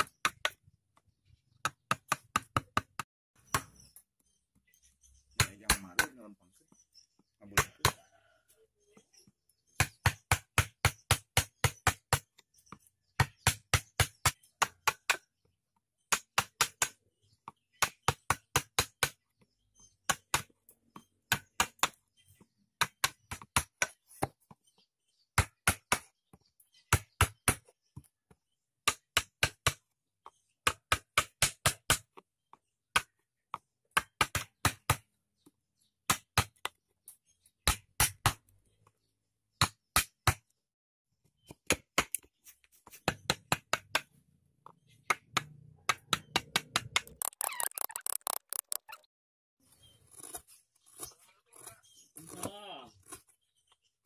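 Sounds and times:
hatchet chopping wood: 0:00.0 - 0:00.7, 0:01.6 - 0:03.8, 0:05.3 - 0:06.3, 0:07.2 - 0:08.1, 0:09.7 - 0:22.0, 0:22.8 - 0:24.5, 0:25.3 - 0:28.1, 0:28.8 - 0:35.2, 0:36.0 - 0:36.8, 0:37.6 - 0:38.5, 0:39.6 - 0:40.5, 0:41.5 - 0:44.2, 0:45.0 - 0:47.3.

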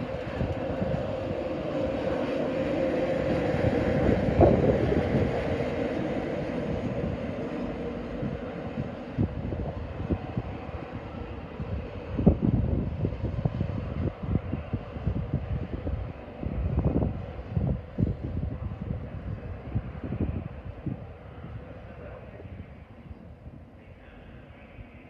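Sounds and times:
train wheels rumbling on rail: 0:00.0 - 0:22.5.

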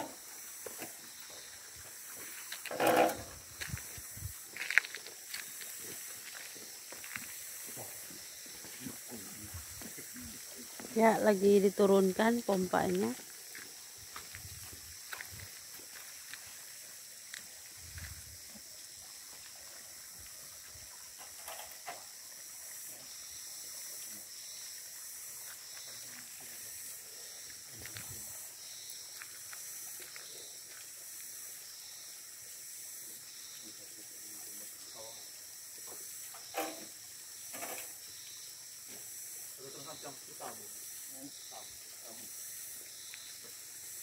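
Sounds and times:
high-pitched hiss: 0:00.0 - 0:44.0
metal pump clunking on concrete: 0:02.7 - 0:03.3, 0:36.4 - 0:36.9.

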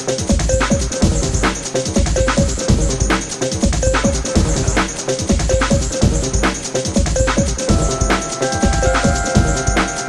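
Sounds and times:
electronic music with steady beat: 0:00.0 - 0:10.0
deep sliding bass notes: 0:02.2 - 0:08.3.

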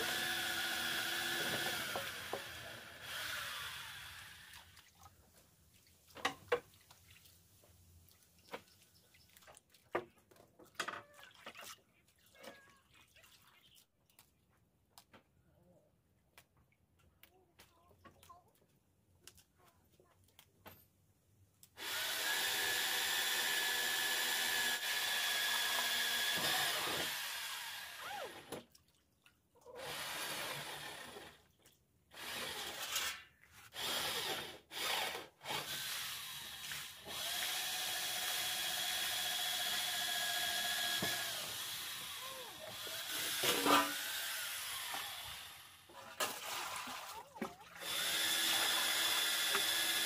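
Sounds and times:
small motor whining in bursts: 0:00.0 - 0:04.5, 0:21.8 - 0:28.5, 0:47.8 - 0:50.0.

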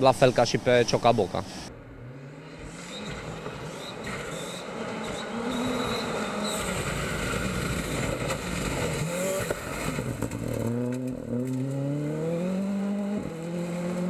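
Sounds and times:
gravel and tyres rushing: 0:00.0 - 0:14.0
rally car engine at full throttle: 0:01.5 - 0:14.0.

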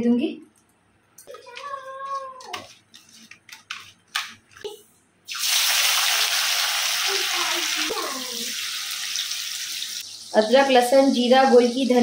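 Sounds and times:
fish frying in hot oil: 0:05.3 - 0:10.9.

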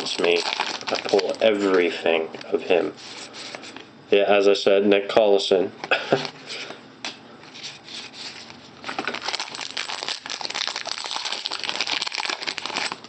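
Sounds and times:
cards rustling: 0:00.0 - 0:01.9, 0:07.5 - 0:13.0
foil wrapper crinkling: 0:00.0 - 0:01.9, 0:07.9 - 0:13.0.

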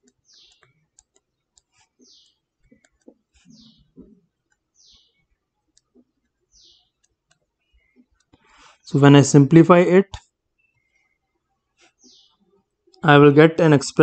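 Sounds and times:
stylus tapping on a tablet: 0:00.0 - 0:08.5.

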